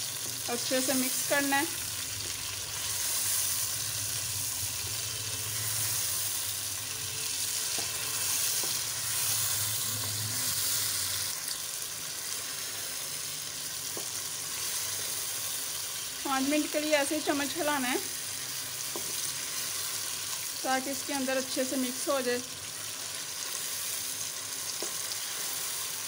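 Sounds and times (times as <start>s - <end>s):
chicken sizzling in oil: 0.0s - 26.0s
wooden spatula stirring: 4.9s - 10.9s.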